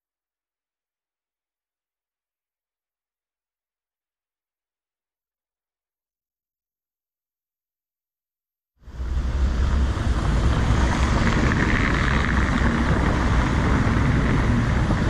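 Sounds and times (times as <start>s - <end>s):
car road and engine rumble: 8.9s - 15.0s
wind noise on microphone: 8.9s - 15.0s.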